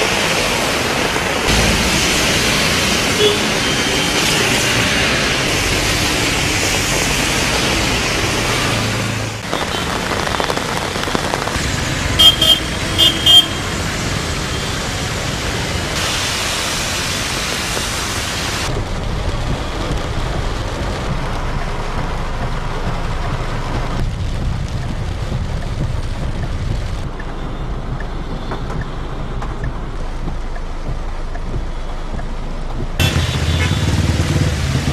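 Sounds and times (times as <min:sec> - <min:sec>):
heavy rain: 0:00.0 - 0:34.9
tyres on wet road: 0:00.0 - 0:34.9
car horn beeps: 0:03.2 - 0:03.5, 0:12.2 - 0:13.6, 0:33.0 - 0:33.9.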